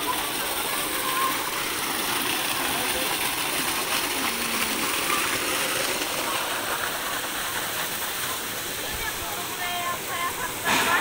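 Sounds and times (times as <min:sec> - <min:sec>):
water gushing into pool: 0:00.0 - 0:11.0.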